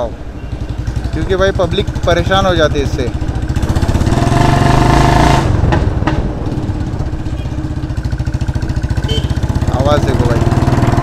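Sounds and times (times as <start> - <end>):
motorcycle exhaust thump: 5.4 - 9.4.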